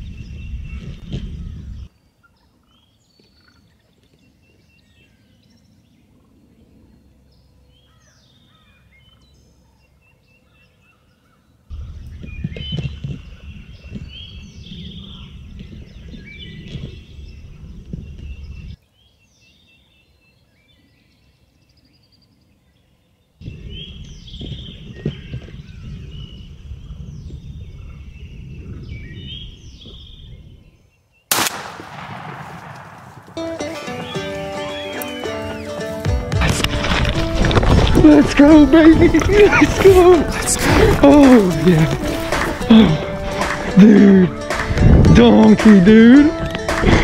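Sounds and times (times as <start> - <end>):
songbirds chirping: 0.0 - 47.0
heavy low rumbling: 31.5 - 34.8.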